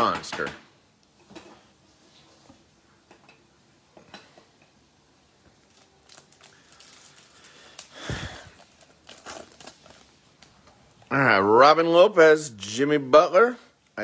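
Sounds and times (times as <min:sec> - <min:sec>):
loud crinkling rustle: 0:05.6 - 0:10.5
foil card pack crinkling: 0:05.6 - 0:10.6.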